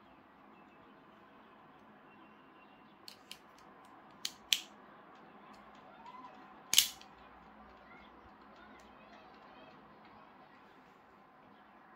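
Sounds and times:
blade snapping open with ring: 4.2s - 4.7s, 6.7s - 7.0s
switchblade mechanism clicking: 4.2s - 4.7s, 6.7s - 7.0s.

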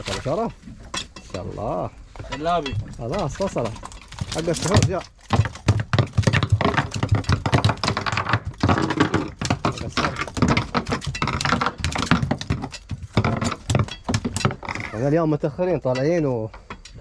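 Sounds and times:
fish thrashing on boat deck: 2.5s - 15.1s.

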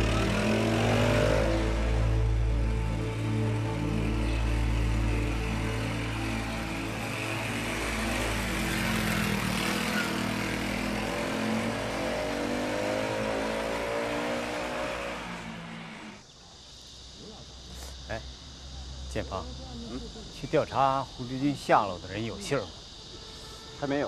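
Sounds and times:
small motorcycle engine revving: 0.0s - 16.2s.

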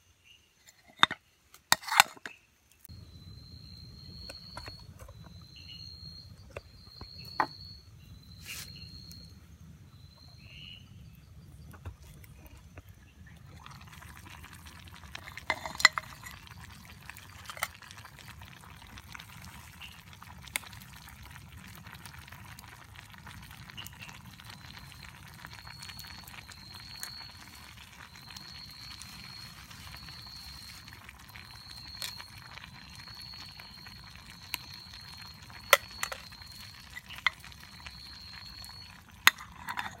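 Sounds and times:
vegetables sizzling in a pan: 8.1s - 9.3s, 13.4s - 40.0s.

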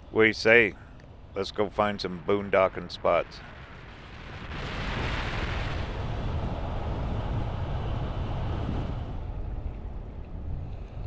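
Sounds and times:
rushing wind-like hiss: 3.0s - 9.7s.

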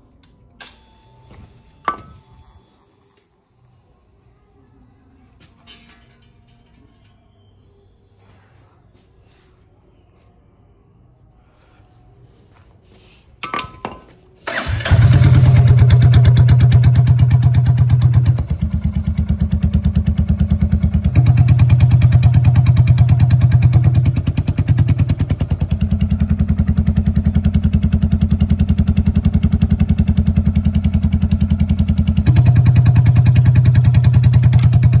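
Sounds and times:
motorcycle engine idling loudly: 14.6s - 35.0s.

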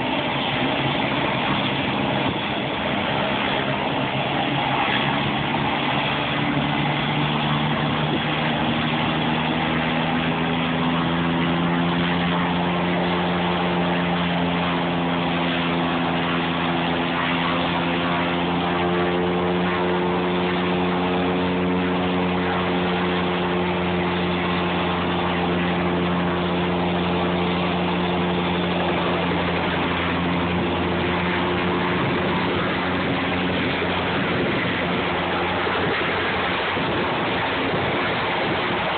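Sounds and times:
helicopter engine whine: 0.0s - 38.9s
helicopter rotor hum: 0.0s - 38.9s
rush of air: 22.2s - 38.9s.

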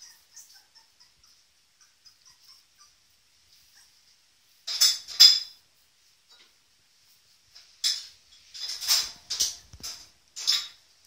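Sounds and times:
puppies squeaking: 0.0s - 4.1s.

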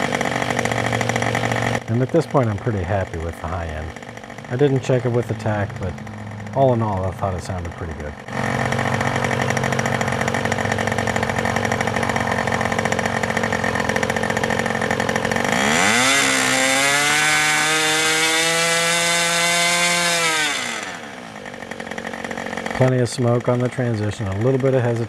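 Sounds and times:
model airplane engine running: 0.0s - 25.0s.

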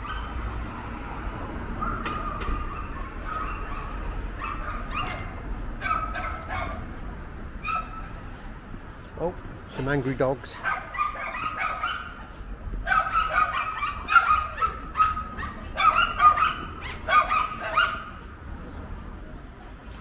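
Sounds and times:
dogs barking angrily: 1.6s - 7.0s, 7.6s - 8.3s, 10.4s - 18.3s.

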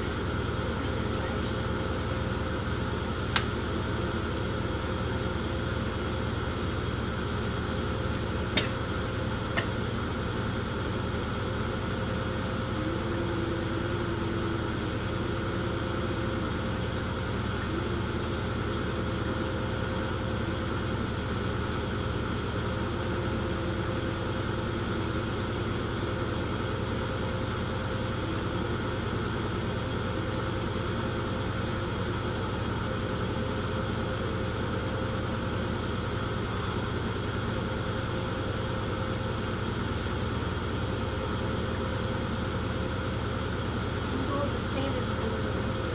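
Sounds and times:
mechanical hum of shaking rig: 0.0s - 26.6s.

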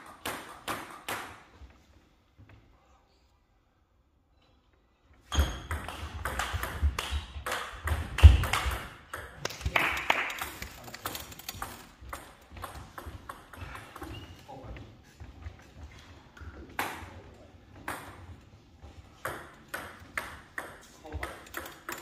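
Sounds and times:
table tennis ball clicking: 19.3s - 22.0s.

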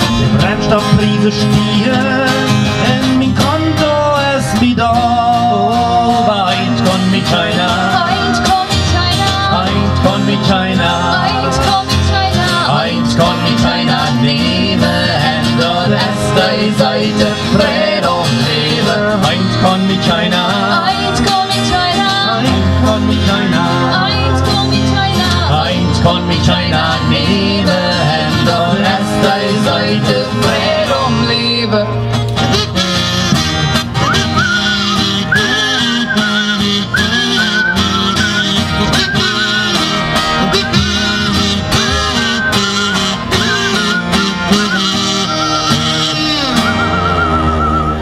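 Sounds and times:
acoustic guitars strumming: 0.0s - 48.0s
wavering melody line: 32.7s - 48.0s.

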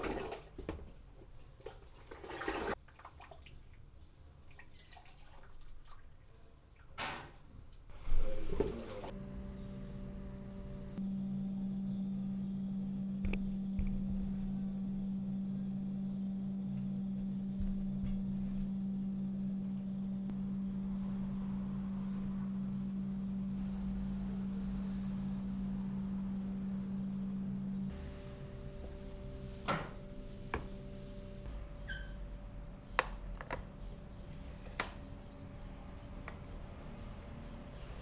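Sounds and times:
steady low hum: 8.0s - 34.4s.

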